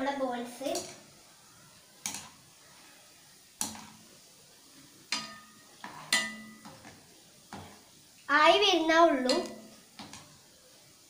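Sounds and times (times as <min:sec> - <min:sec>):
wire skimmer clinking on frying pan: 0:02.0 - 0:02.4, 0:05.1 - 0:06.9.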